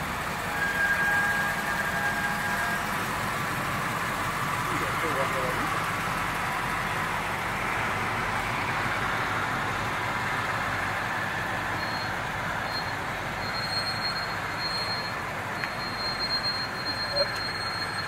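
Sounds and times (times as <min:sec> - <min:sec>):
car engine idling: 0:00.0 - 0:13.4.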